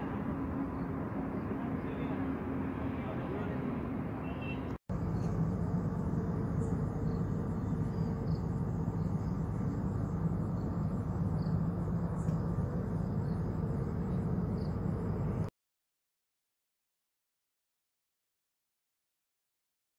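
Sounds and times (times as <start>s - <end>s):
faint insects chirping: 0.0s - 2.4s, 4.3s - 15.5s
low drone of machinery: 0.0s - 15.5s.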